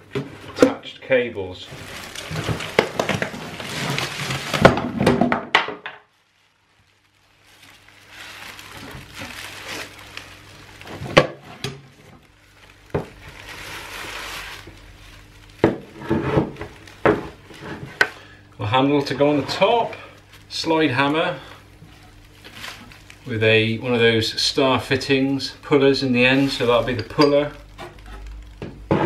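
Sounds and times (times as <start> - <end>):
plastic wrapping rustling: 0.0 - 29.0.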